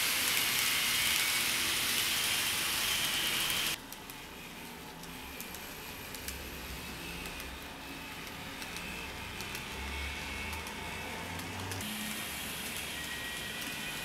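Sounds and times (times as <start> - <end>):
model train motor hum: 0.0 - 14.0
wheels clicking on rails: 8.6 - 12.0.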